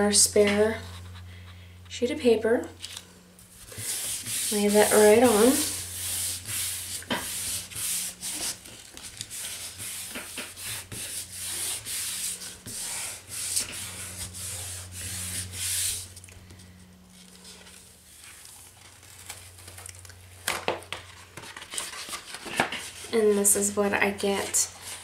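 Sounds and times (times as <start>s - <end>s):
hands rubbing paper: 3.4s - 16.2s.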